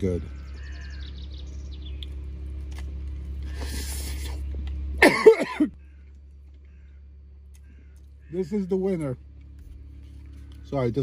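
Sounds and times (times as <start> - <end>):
low hum: 0.0 - 11.0
man chewing: 2.0 - 5.0.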